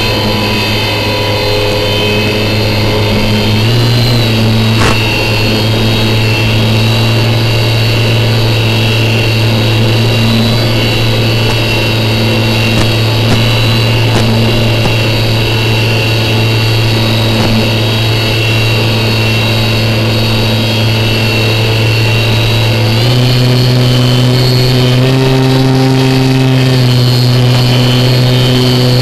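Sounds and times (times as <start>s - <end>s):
electric motor and propeller whine: 0.0s - 29.0s
sharp click: 4.8s - 5.2s, 12.7s - 15.2s.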